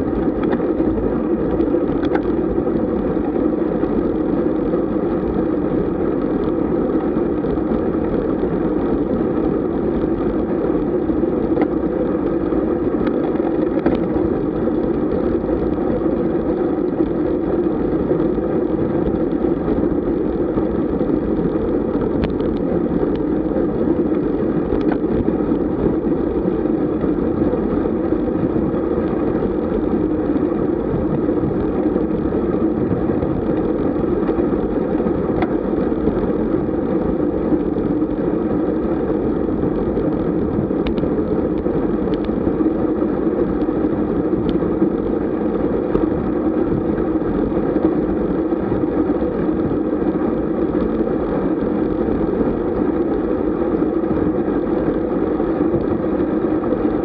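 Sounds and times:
road noise: 0:00.0 - 0:57.0
wind rush: 0:00.0 - 0:57.0
faint ticks: 0:24.1 - 0:25.3, 0:40.5 - 0:42.4.

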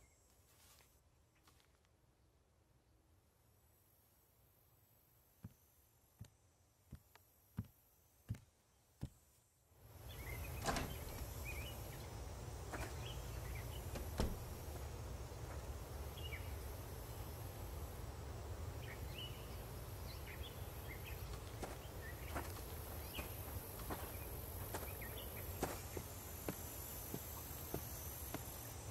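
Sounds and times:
birds chirping: 0:09.9 - 0:28.9.

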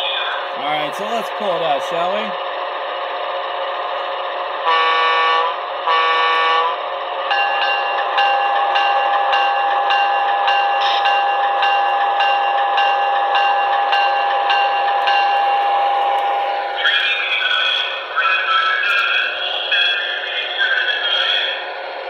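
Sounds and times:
locomotive horn blasts: 0:04.6 - 0:06.8
locomotive bell ringing: 0:07.3 - 0:21.6.

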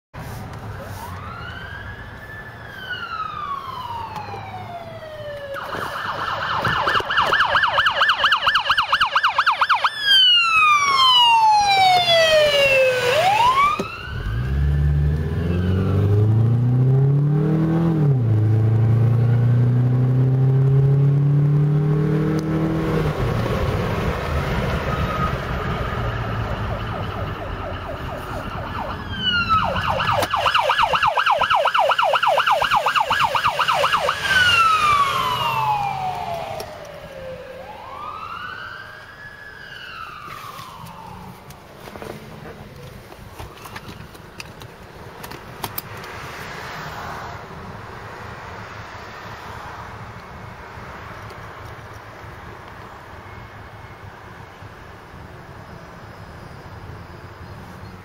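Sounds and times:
ambulance siren: 0:00.6 - 0:42.1
vehicle engine: 0:10.4 - 0:58.0.

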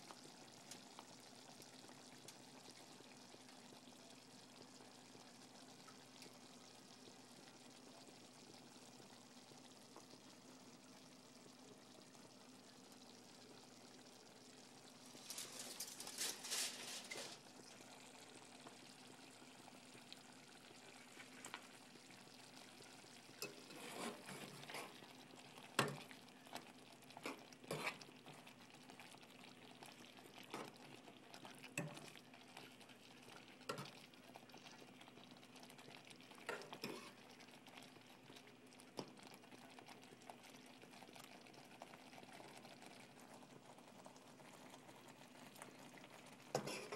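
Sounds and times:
faint steady hum: 0:00.0 - 0:46.9
utensil scraping and knocking pot: 0:23.4 - 0:25.0, 0:27.2 - 0:28.0, 0:46.6 - 0:46.9.

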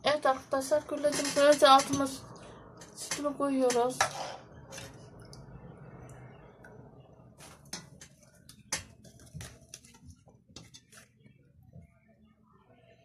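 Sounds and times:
milk sloshing in a pot: 0:04.0 - 0:11.3.

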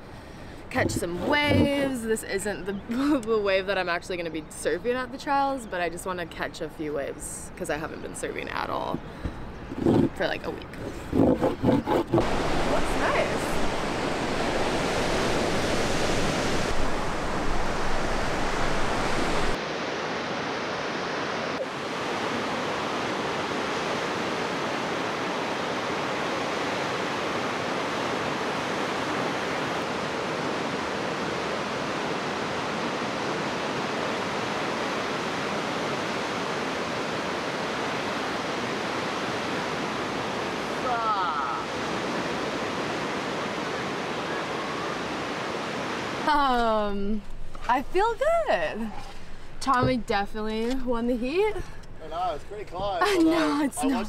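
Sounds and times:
ocean surf waves breaking: 0:10.8 - 0:50.2.

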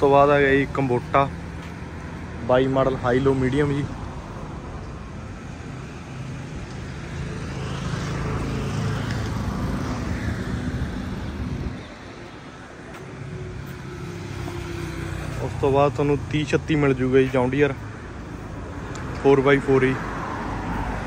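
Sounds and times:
road traffic noise: 0:00.0 - 0:21.0.

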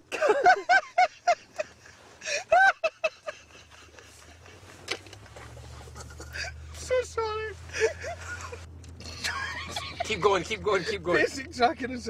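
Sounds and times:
man laughing hard: 0:00.1 - 0:05.2, 0:07.7 - 0:10.2.

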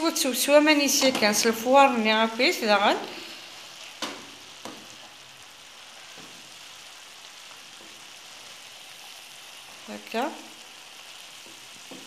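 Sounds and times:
greens sizzling in a frying pan: 0:00.0 - 0:12.0
wooden spoon knocking on pan: 0:04.0 - 0:04.9, 0:11.4 - 0:12.0.

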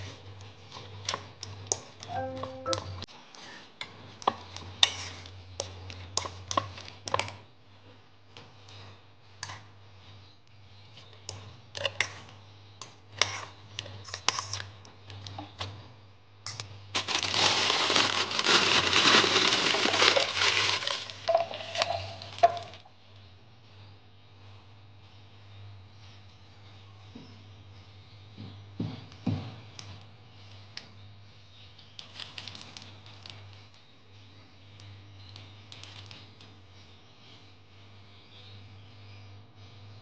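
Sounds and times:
low hum: 0:02.1 - 0:03.1
plastic bag crinkling: 0:16.9 - 0:22.8.

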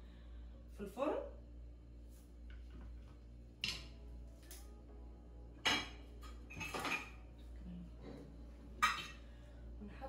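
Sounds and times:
metal utensils clinking on dishes: 0:05.6 - 0:07.2, 0:08.8 - 0:09.3.

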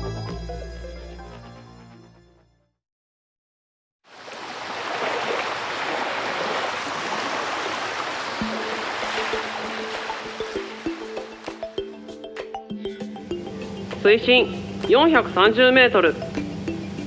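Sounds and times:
music: 0:00.0 - 0:02.8, 0:08.4 - 0:17.0
rushing bubbling water: 0:04.1 - 0:11.6
sustained music notes: 0:08.4 - 0:17.0.

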